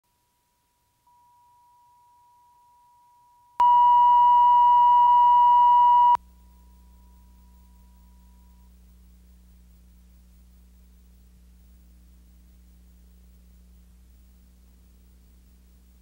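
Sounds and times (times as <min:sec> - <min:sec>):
low hum: 0:03.6 - 0:16.0.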